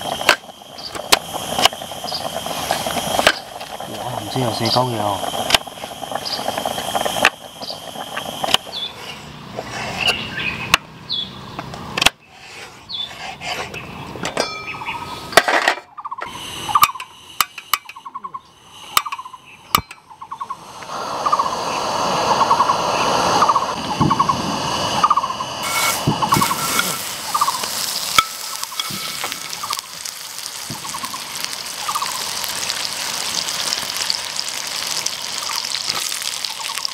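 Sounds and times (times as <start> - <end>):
butter sizzling in pan: 0.0 - 9.0, 21.0 - 36.9
steady rushing noise: 0.0 - 10.5, 16.3 - 32.7
gas stove burning: 0.0 - 12.3, 13.2 - 36.9
bird trilling: 1.9 - 5.2, 6.0 - 6.6, 14.6 - 15.3, 15.9 - 17.1, 17.8 - 32.6.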